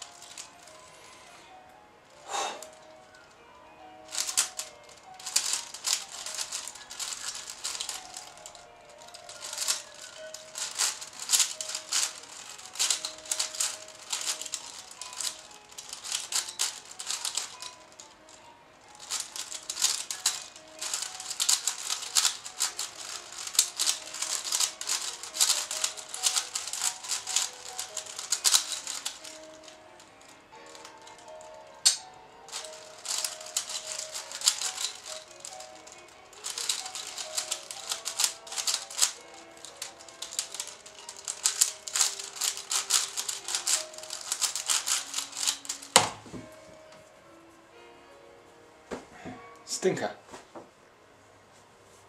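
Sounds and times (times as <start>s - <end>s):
puzzle cube clicking: 4.1s - 18.2s, 19.0s - 46.3s.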